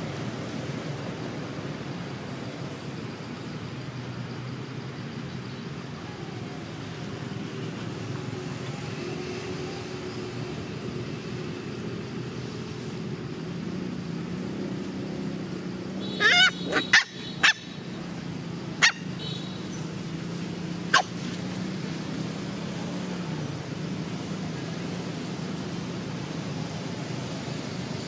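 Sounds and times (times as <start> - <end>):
puppy yelping: 16.2 - 17.8, 18.8 - 19.1, 20.9 - 21.2.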